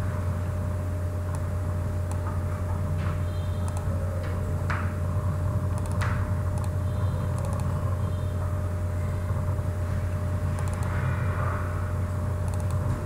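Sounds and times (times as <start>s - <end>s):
low background hum: 0.0s - 13.0s
mouse clicks: 3.7s - 3.9s, 5.8s - 6.8s, 7.4s - 7.7s, 10.6s - 11.0s, 12.5s - 12.8s.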